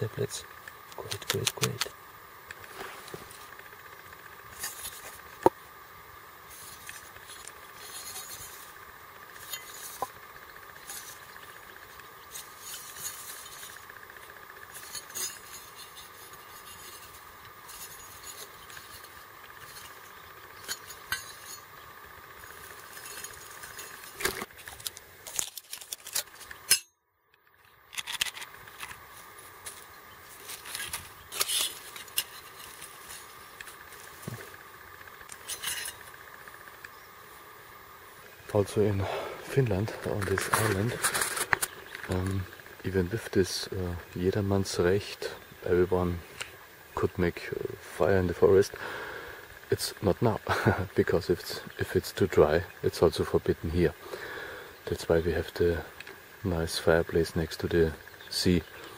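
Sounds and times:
sharp metal click: 0:23.0 - 0:29.0.

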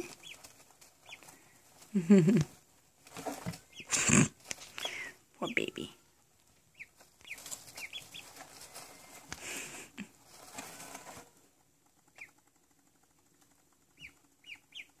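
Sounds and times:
rustling in wood shavings: 0:00.0 - 0:11.5
ducklings peeping: 0:00.0 - 0:15.0.

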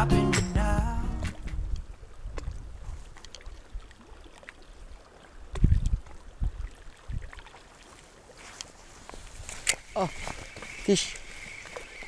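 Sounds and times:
water lapping against rocky shore: 0:01.4 - 0:12.0
wind buffeting microphone: 0:05.5 - 0:07.4.

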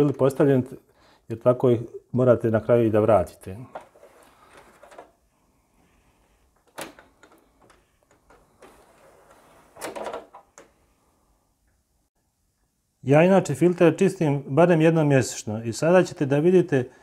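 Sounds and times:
plastic scraping and rustling: 0:03.7 - 0:05.3, 0:05.9 - 0:10.8.

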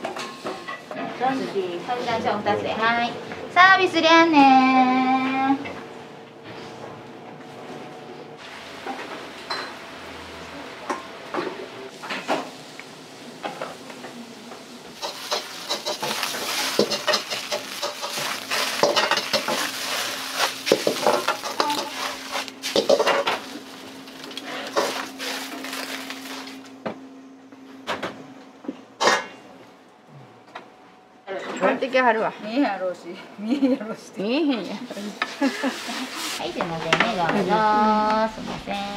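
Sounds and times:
food sizzling in a wok: 0:11.9 - 0:26.6
metal ladle scraping wok: 0:15.0 - 0:23.5.

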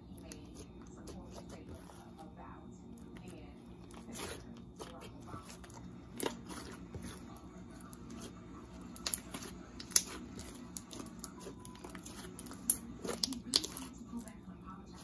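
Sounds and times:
slime being kneaded by hand: 0:03.9 - 0:07.3, 0:08.0 - 0:14.0
wet clicks and pops: 0:12.6 - 0:13.9.

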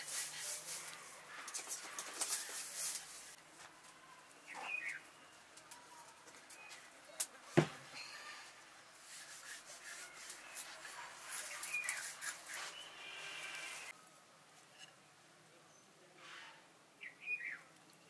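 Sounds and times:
birds chirping: 0:04.0 - 0:05.5, 0:10.0 - 0:13.9
dough rubbed on wooden board: 0:09.0 - 0:12.8.

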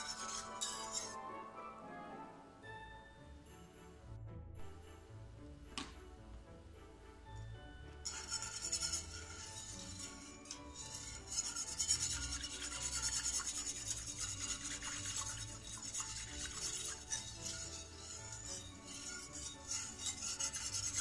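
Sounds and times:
whisk scraping metal pot: 0:00.0 - 0:01.2, 0:08.0 - 0:21.0.

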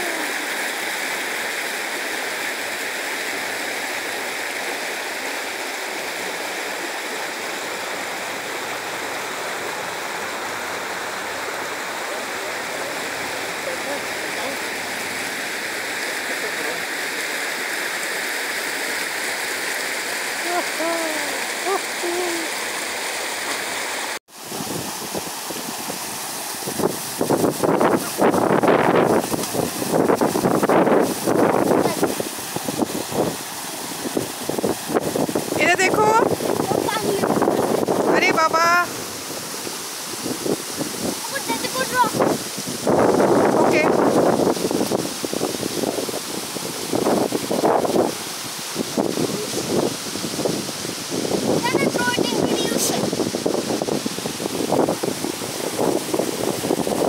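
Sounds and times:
water rushing over rocks: 0:00.0 - 0:57.0
wind buffeting microphone: 0:24.4 - 0:57.0.

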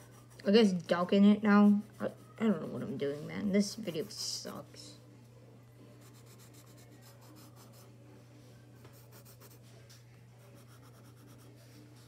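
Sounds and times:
pencil scratching on paper: 0:00.0 - 0:04.4, 0:08.9 - 0:09.6, 0:10.5 - 0:12.0.

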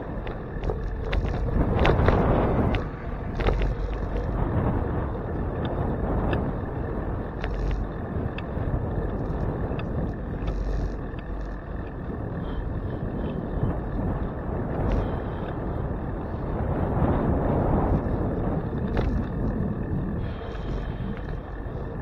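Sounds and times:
light clicks and rattles: 0:00.0 - 0:04.7, 0:05.3 - 0:12.4, 0:17.9 - 0:22.0
tyres rumbling on road: 0:00.0 - 0:22.0
wind buffeting microphone: 0:00.0 - 0:22.0.

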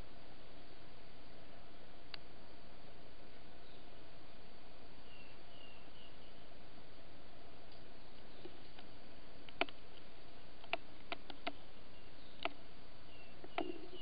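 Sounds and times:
steady hiss: 0:00.0 - 0:14.0
bird tapping on bamboo: 0:13.4 - 0:14.0.

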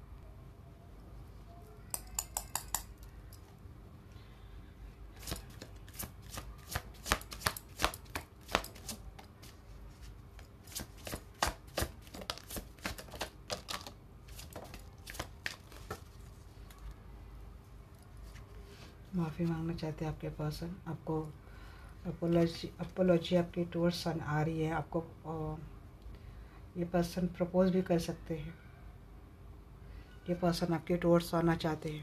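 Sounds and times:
cards being shuffled: 0:05.2 - 0:17.0.

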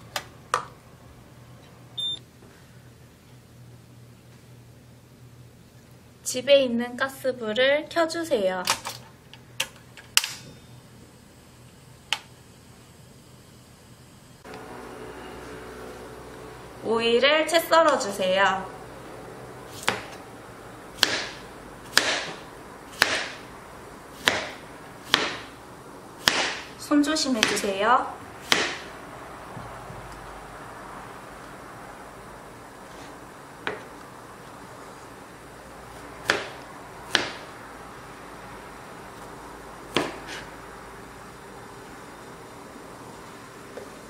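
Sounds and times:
knife chopping on cutting board: 0:19.7 - 0:20.2, 0:21.0 - 0:23.4, 0:24.2 - 0:25.5, 0:26.2 - 0:26.7, 0:27.4 - 0:27.7, 0:28.4 - 0:28.9, 0:36.2 - 0:37.4, 0:39.9 - 0:40.5.

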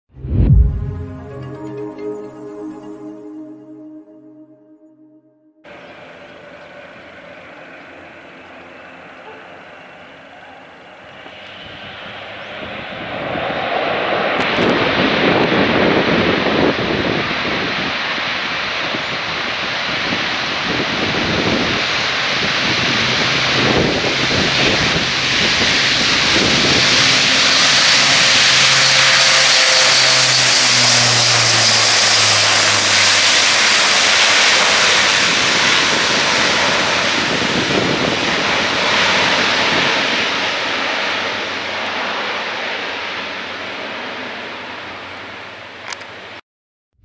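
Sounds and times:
low hum dropping in pitch: 0:00.1 - 0:11.0, 0:21.6 - 0:35.7
turboprop aircraft taking off: 0:00.2 - 0:02.1, 0:05.7 - 0:46.4.

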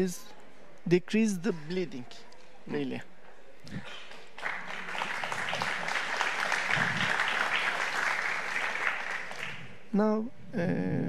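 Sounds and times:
audience applauding: 0:03.8 - 0:09.9.

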